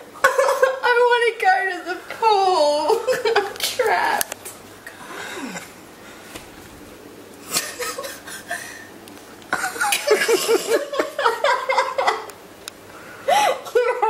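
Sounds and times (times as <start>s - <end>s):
people laughing: 0.2s - 0.8s, 2.9s - 3.7s, 7.5s - 8.8s, 9.5s - 12.3s.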